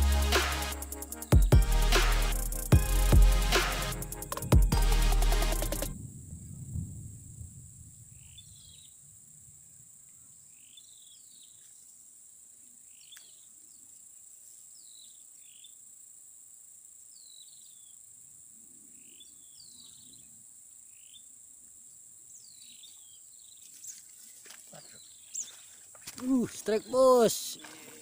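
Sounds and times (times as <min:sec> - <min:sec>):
insects trilling: 0:07.6 - 0:28.0
bird chirping: 0:08.1 - 0:09.1, 0:10.1 - 0:11.9, 0:12.7 - 0:14.1, 0:18.8 - 0:21.4, 0:22.3 - 0:28.0.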